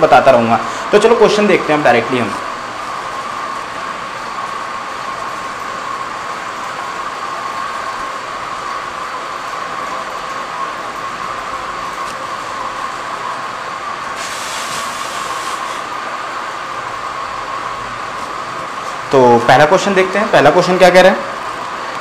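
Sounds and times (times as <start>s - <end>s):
steady background hum: 0.0s - 22.0s
duster wiping whiteboard: 14.2s - 15.9s.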